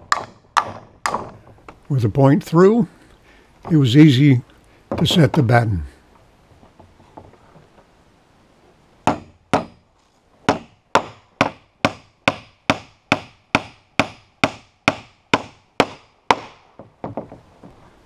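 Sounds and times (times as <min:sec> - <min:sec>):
hammer striking nail into wood: 0:00.0 - 0:01.4, 0:09.0 - 0:09.8, 0:10.5 - 0:17.2
faint handling noise: 0:01.2 - 0:02.1, 0:02.9 - 0:08.0, 0:17.2 - 0:18.0.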